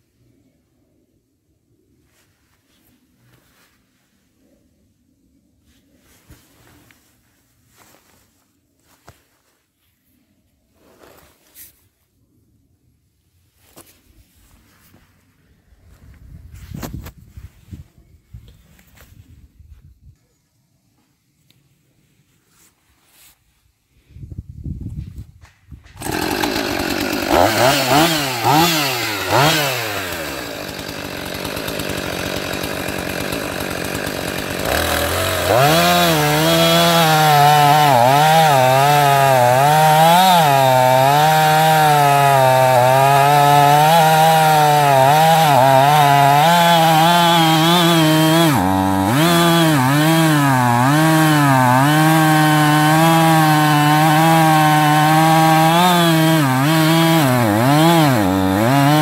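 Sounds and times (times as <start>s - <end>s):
chainsaw cutting log: 25.9s - 59.0s
chainsaw revving and idling: 25.9s - 59.0s.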